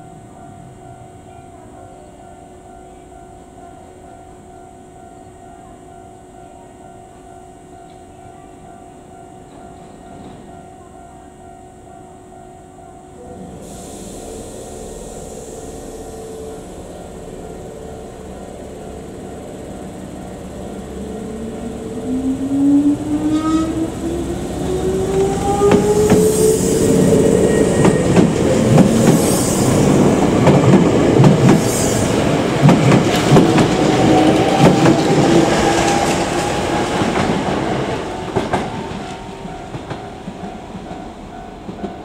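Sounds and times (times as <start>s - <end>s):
train motor whine: 13.2s - 39.9s.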